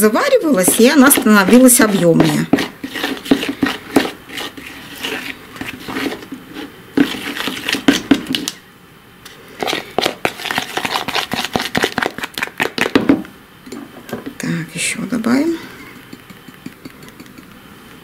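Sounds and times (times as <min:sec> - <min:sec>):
fork scraping plastic bowl: 0:00.3 - 0:08.6, 0:09.3 - 0:13.0.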